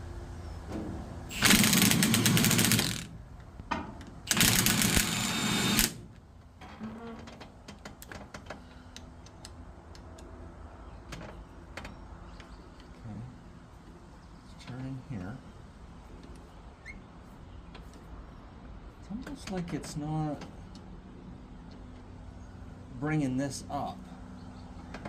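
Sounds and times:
impact wrench hammering: 0:01.4 - 0:03.1.

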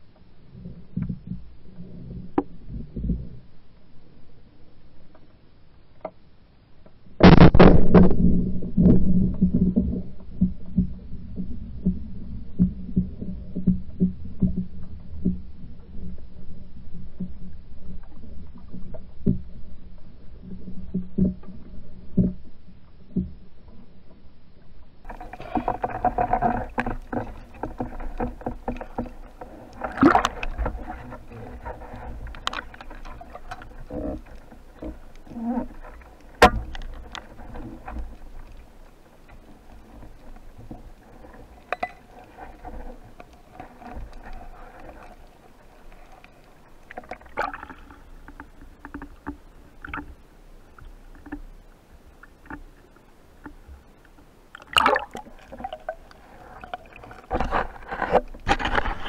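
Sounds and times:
low underwater rumble: 0:00.0 - 0:05.6, 0:06.6 - 0:59.0
underwater knocks: 0:25.1 - 0:38.5
water rushing: 0:25.1 - 0:52.6, 0:54.3 - 0:58.3.

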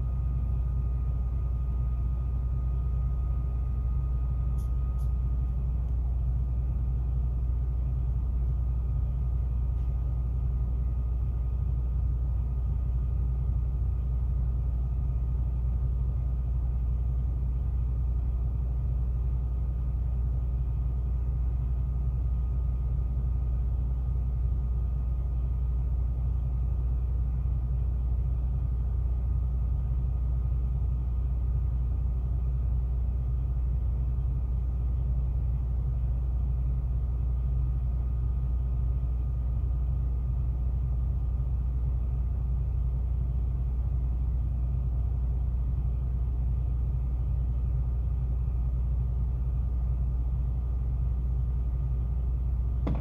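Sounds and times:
faint thin whine: 0:00.0 - 0:06.2
truck engine idling: 0:00.0 - 0:53.0.

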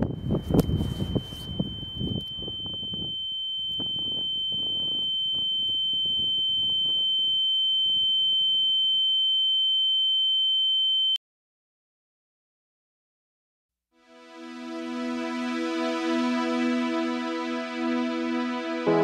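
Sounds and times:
high-pitched ringing tone: 0:00.0 - 0:11.2.

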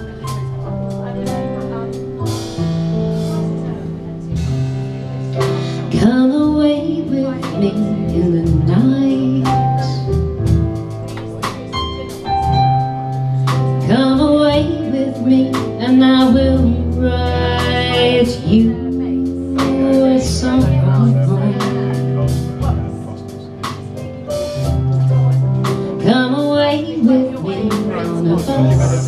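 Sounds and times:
picked guitar chords: 0:00.0 - 0:29.0
woman singing: 0:05.4 - 0:10.2, 0:13.5 - 0:22.6, 0:25.6 - 0:29.0.

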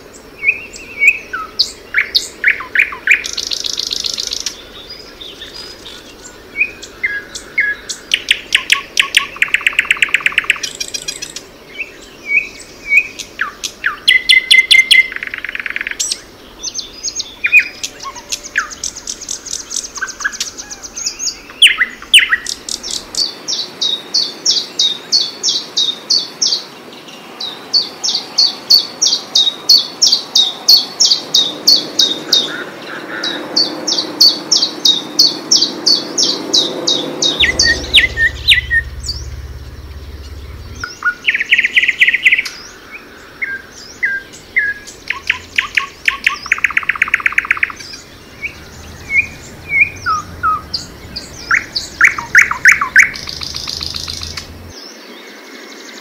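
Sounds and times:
nightingale song with trills: 0:00.0 - 0:56.0
lower whistled bird notes: 0:28.4 - 0:54.8
warbler repeated high notes: 0:35.6 - 0:41.0, 0:43.7 - 0:54.7.

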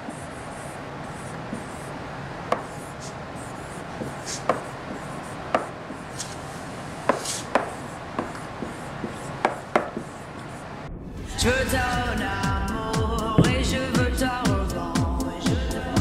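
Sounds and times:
marker squeaky scratching: 0:00.0 - 0:10.8
marker tip tapping whiteboard: 0:02.5 - 0:03.2, 0:04.0 - 0:06.4, 0:07.1 - 0:10.5.

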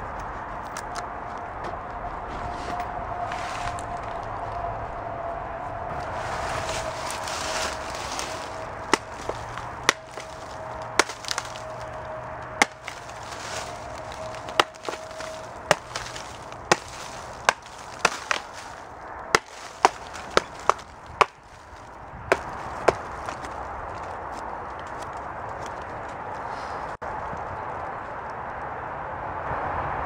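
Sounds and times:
hatchet chopping wood: 0:08.2 - 0:11.9, 0:12.6 - 0:21.6, 0:22.2 - 0:23.6.

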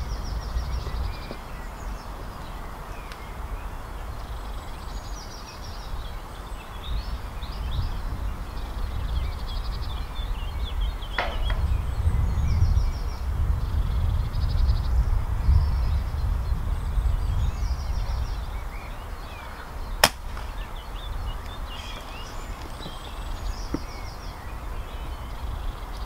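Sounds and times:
small birds chirping: 0:00.0 - 0:26.0
wind buffeting microphone: 0:00.0 - 0:26.0
air rifle shot: 0:11.2 - 0:12.0, 0:20.0 - 0:20.8.

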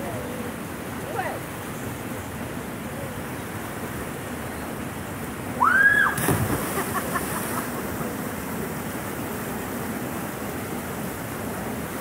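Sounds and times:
water cascade rushing: 0:05.4 - 0:12.0
splash into water: 0:05.9 - 0:07.8.

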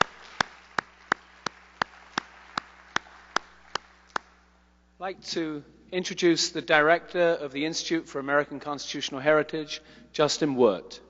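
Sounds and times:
audience applause: 0:00.0 - 0:04.4
person clapping: 0:00.0 - 0:04.4.

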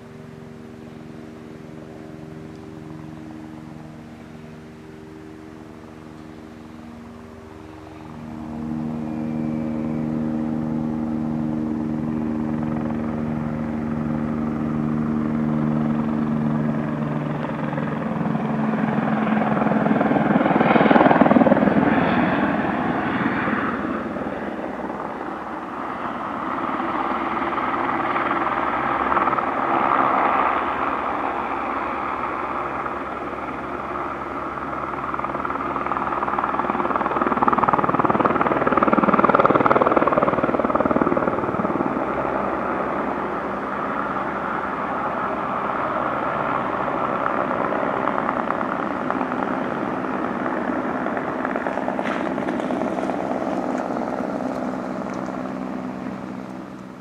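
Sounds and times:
helicopter rotor noise: 0:00.0 - 0:57.0.

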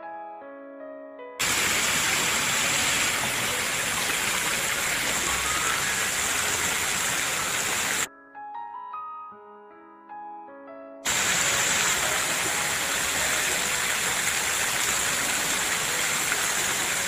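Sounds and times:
water cascading down a fountain: 0:01.4 - 0:08.1, 0:11.1 - 0:17.0.

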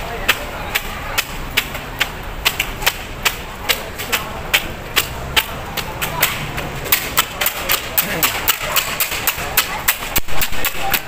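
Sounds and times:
low street rumble: 0:00.0 - 0:11.0.

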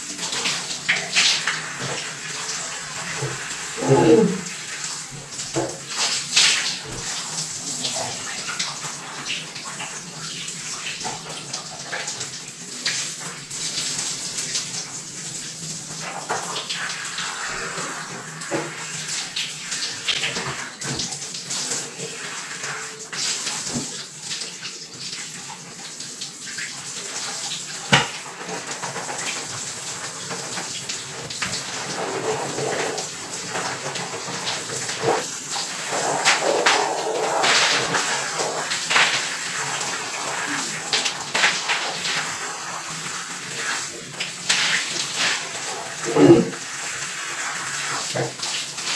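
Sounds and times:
steady rush of water: 0:26.4 - 0:48.9
water splashing: 0:30.2 - 0:48.9.

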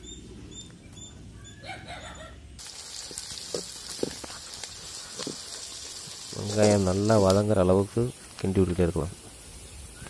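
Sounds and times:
onions sizzling in hot oil: 0:02.6 - 0:10.0.

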